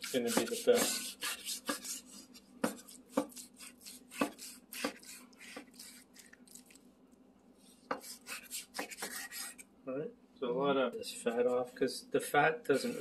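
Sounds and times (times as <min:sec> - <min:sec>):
knife cutting on cutting board: 0:00.0 - 0:06.7, 0:07.9 - 0:09.6.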